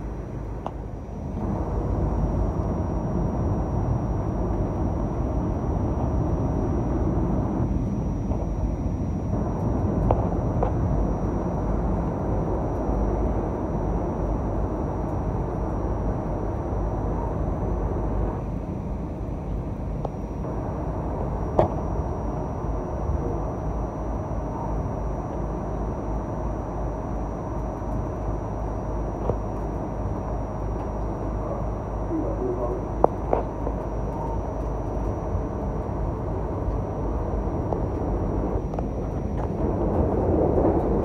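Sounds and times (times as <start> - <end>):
faint steady whine: 0.0 - 41.0
rail car rumble: 31.4 - 41.0.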